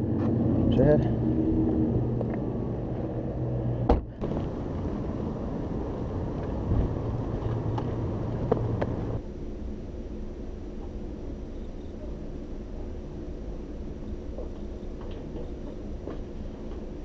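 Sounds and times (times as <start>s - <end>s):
outdoor rumble: 0.0s - 9.2s
car idling: 4.2s - 9.2s.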